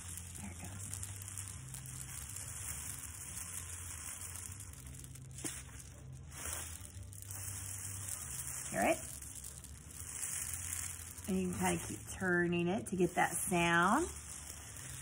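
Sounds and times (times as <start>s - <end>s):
rain stick rice trickling: 0.0s - 15.0s.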